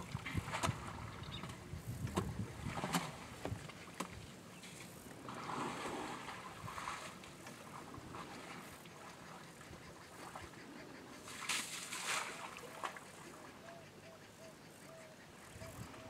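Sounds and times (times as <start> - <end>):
elephant drinking water splashing: 5.2 - 9.2, 11.3 - 13.2.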